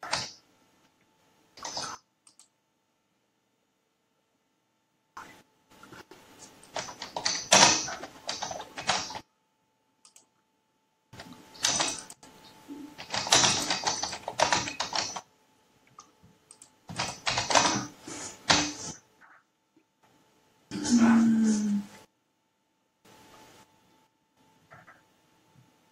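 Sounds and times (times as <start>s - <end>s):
computer keyboard typing: 0.0s - 0.4s, 1.6s - 2.5s, 5.8s - 9.2s, 10.0s - 10.3s, 11.2s - 12.3s, 12.9s - 15.3s, 16.0s - 17.9s.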